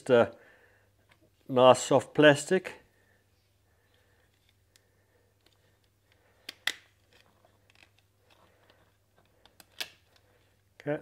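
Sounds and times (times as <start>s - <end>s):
sharp plastic snaps: 4.6s - 10.3s.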